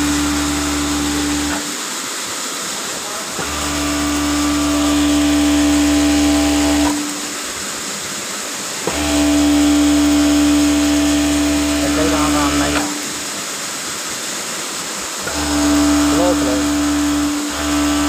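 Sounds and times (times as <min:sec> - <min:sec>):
overlock sewing machine stitching: 0:00.0 - 0:01.7, 0:08.9 - 0:13.0, 0:15.2 - 0:18.0
steady hiss: 0:00.0 - 0:18.0.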